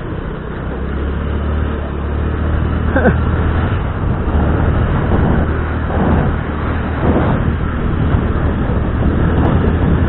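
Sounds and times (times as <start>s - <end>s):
motorbike engine hum: 0.0s - 10.0s
wind on microphone: 3.1s - 10.0s.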